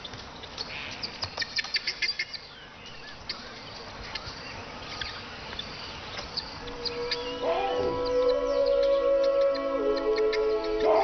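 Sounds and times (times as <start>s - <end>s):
bird calls: 0.0s - 11.0s
sharp bird chirps: 6.4s - 11.0s.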